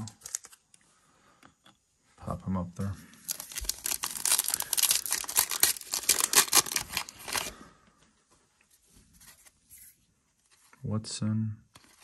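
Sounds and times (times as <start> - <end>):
foil wrapper tearing and crinkling: 3.2 - 7.5.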